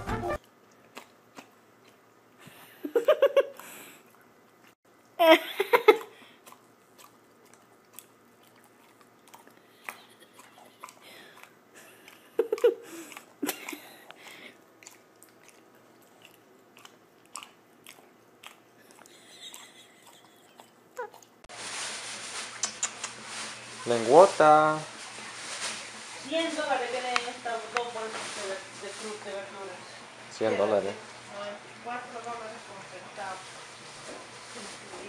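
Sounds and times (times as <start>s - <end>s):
dog licking and smacking: 5.9s - 21.4s.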